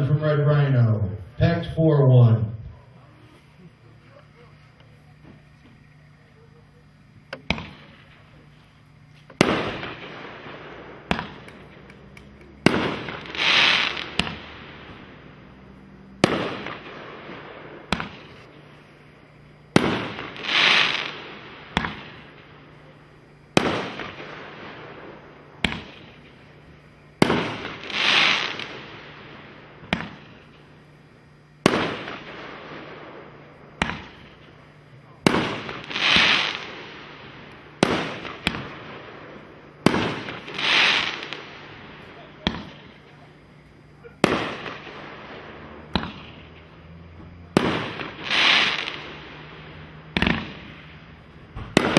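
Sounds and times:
firework bangs: 0.0s - 51.9s
rushing hiss: 12.9s - 15.6s, 20.0s - 22.3s, 27.2s - 30.8s, 35.5s - 38.6s.

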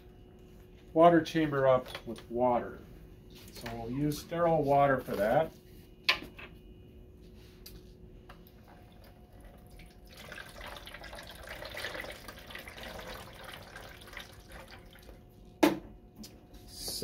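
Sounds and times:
water pouring through funnel: 8.8s - 15.3s.

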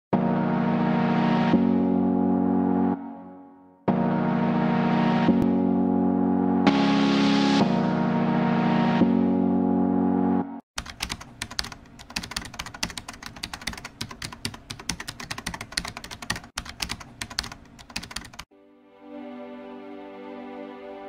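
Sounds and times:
music: 0.1s - 10.6s, 18.5s - 21.0s
keyboard typing clicks: 10.8s - 18.5s.

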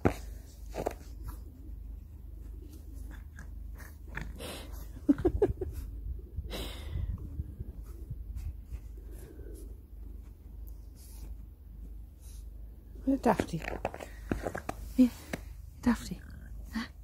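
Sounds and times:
puppy breath puffs: 3.6s - 12.8s.

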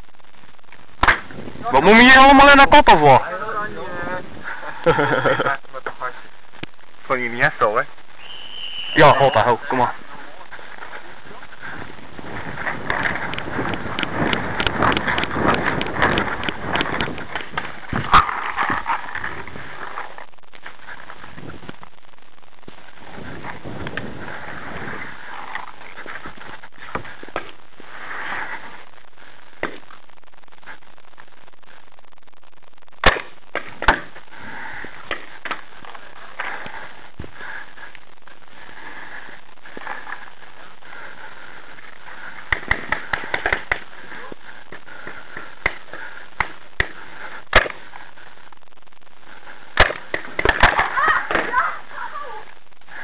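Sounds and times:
steady background hiss: 0.0s - 53.0s
paintball marker pops: 42.5s - 43.8s, 46.4s - 47.8s
paintball markers firing: 42.5s - 43.9s.

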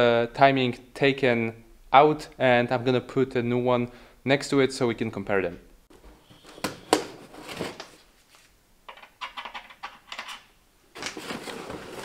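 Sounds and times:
box being handled and unpacked: 6.3s - 8.5s, 11.0s - 12.0s.

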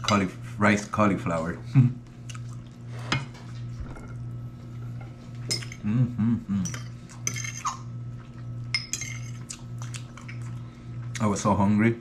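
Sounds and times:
steady low hum: 0.0s - 12.0s
person humming: 5.8s - 6.8s
forks clinking on plates: 6.6s - 7.8s, 8.7s - 9.4s.

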